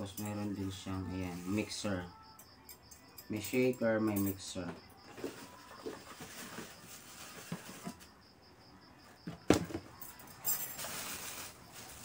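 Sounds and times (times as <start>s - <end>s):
plastic packaging rustling: 5.1s - 8.1s, 10.5s - 12.0s.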